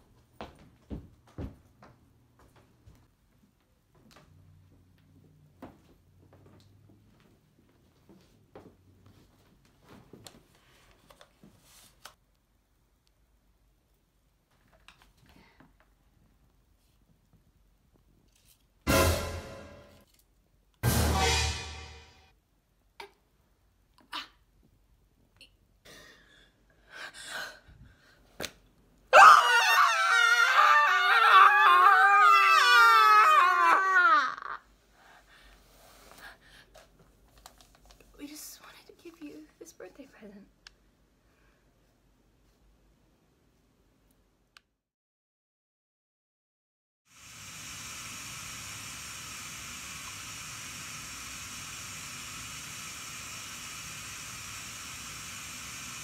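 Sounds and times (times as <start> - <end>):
women screaming: 29.1 - 34.6
click: 44.1 - 44.7
steady hiss: 47.1 - 56.0.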